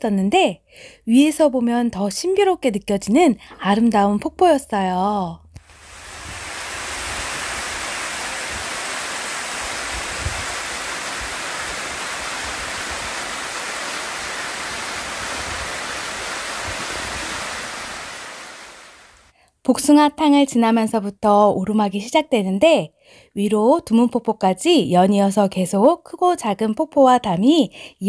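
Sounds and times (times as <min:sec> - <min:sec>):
waterfall pouring into pool: 0:05.6 - 0:19.3.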